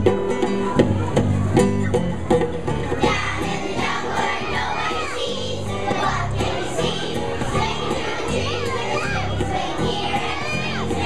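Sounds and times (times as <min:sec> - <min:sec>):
instrumental backing music: 0:00.0 - 0:11.0
children singing together: 0:03.0 - 0:11.0.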